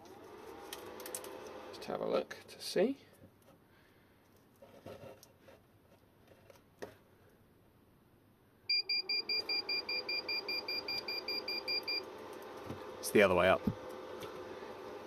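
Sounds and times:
voltage tester high beeps: 8.7s - 12.0s.

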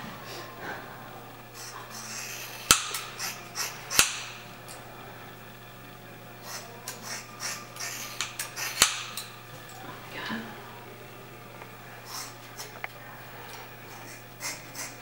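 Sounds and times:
scissors snipping hair: 1.6s - 4.8s, 6.4s - 9.8s.

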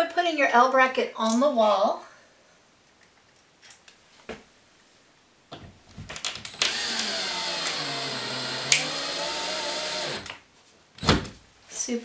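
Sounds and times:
cordless drill driving screw: 6.5s - 10.4s.

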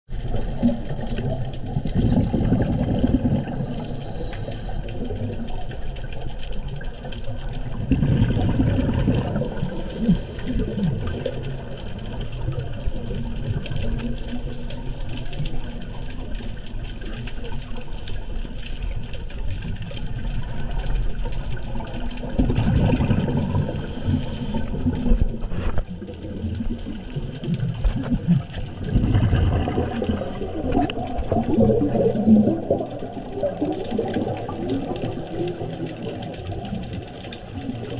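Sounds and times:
exhaled bubbles gurgling underwater: 0.1s - 37.9s
underwater wash: 0.1s - 37.9s
air hissing through regulator: 3.6s - 4.8s, 9.3s - 10.6s, 23.4s - 24.8s, 29.7s - 31.0s.

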